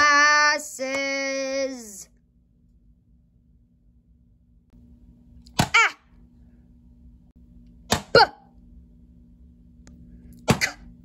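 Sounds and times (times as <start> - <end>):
person saying letter sounds: 0.0 - 2.0
faint steady hum: 0.0 - 11.0.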